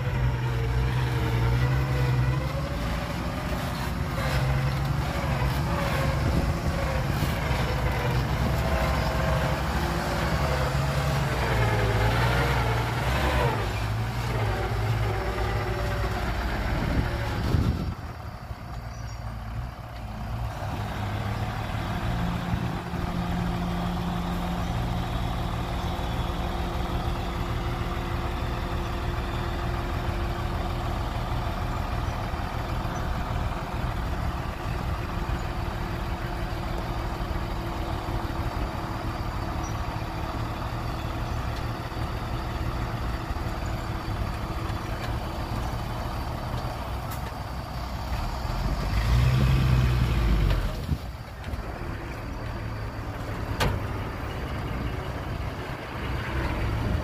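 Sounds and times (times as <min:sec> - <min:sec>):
dump truck diesel engine: 0:00.0 - 0:57.0.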